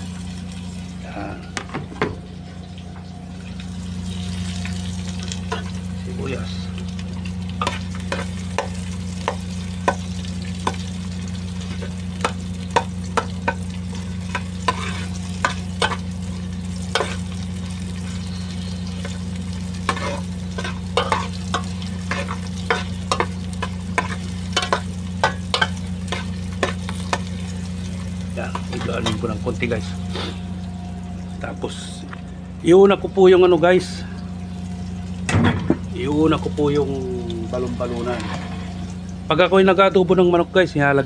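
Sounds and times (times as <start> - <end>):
food frying in oil: 0.0 - 41.0
low hum: 0.0 - 41.0
metal spoon scraping a pot: 14.6 - 15.2, 19.9 - 21.3.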